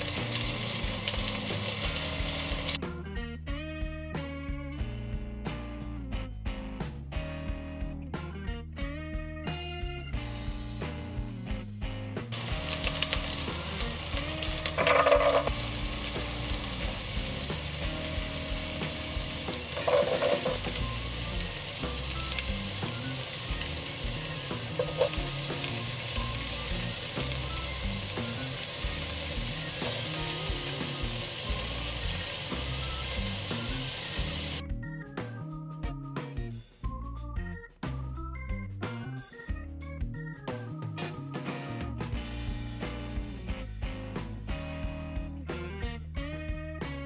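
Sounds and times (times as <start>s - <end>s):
vegetables sizzling in oil: 0.0s - 2.8s, 12.3s - 34.6s
faint background music: 0.0s - 47.0s.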